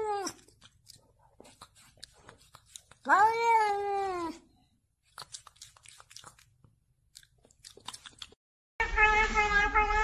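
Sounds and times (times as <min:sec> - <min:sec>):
cat meowing: 0:08.8 - 0:10.0.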